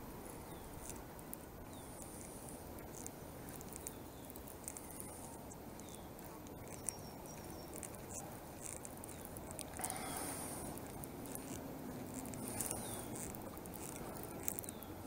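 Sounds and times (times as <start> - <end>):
high chirps and squeaks: 2.8 - 9.7, 11.2 - 15.0.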